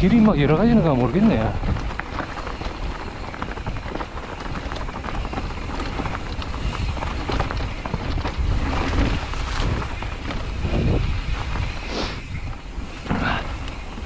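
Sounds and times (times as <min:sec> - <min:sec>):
bike rattling clicks: 0:00.0 - 0:14.0
tyres crunching over leaves and gravel: 0:00.0 - 0:14.0
wind rumble on microphone: 0:00.0 - 0:14.0.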